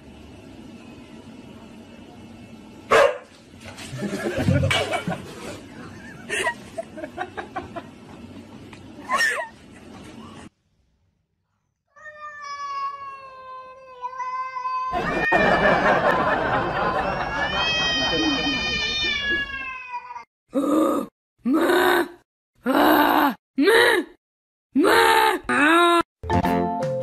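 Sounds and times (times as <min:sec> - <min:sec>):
cat meowing: 0:12.0 - 0:15.0, 0:17.6 - 0:20.3
dog and cat crying: 0:12.0 - 0:15.6, 0:17.2 - 0:20.3.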